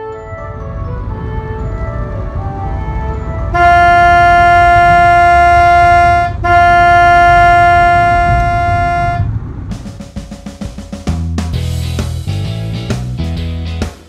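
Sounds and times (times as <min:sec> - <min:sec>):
low road rumble: 0:00.0 - 0:13.8
truck air horn blasts: 0:02.7 - 0:09.4.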